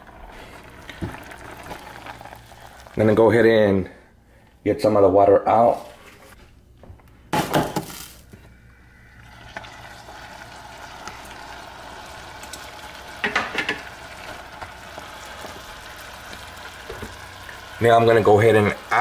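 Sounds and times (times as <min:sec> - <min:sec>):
pan and spatula clatter: 0:13.2 - 0:14.7.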